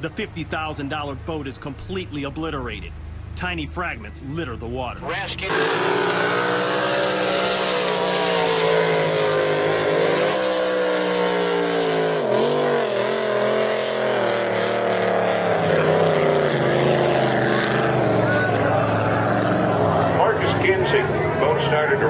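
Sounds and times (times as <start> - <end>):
boat engines at high revs: 0.0 - 22.0.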